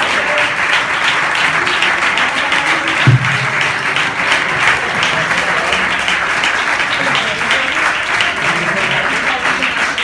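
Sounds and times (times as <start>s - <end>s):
audience applauding: 0.0s - 10.0s
low ringing note: 3.1s - 4.5s.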